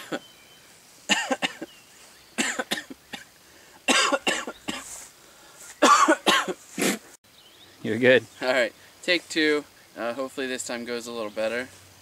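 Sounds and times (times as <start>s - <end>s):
man coughing harshly: 1.1s - 1.7s, 2.4s - 3.3s, 3.9s - 5.0s, 5.8s - 7.0s.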